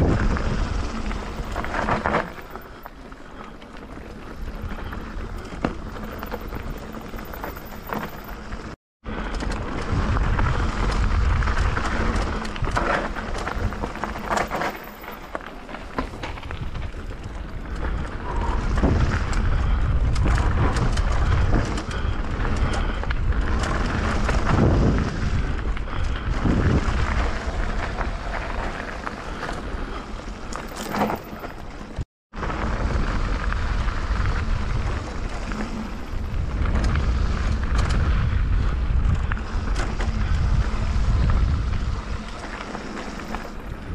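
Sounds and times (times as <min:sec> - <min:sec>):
wind buffeting microphone: 0:00.0 - 0:15.0, 0:15.7 - 0:30.5, 0:31.2 - 0:43.9
bike rattling over stones: 0:00.0 - 0:43.9
tyres crunching on gravel: 0:09.5 - 0:19.4.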